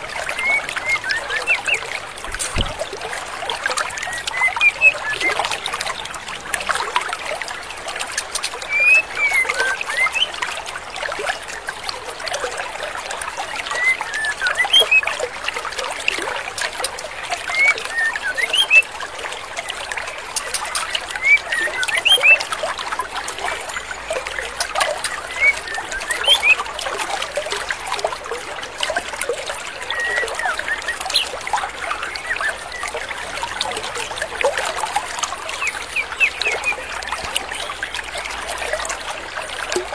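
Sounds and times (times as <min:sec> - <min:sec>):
stream rushing: 0:00.0 - 0:39.9
bird chirps: 0:00.3 - 0:01.8, 0:25.3 - 0:26.6, 0:35.6 - 0:37.8.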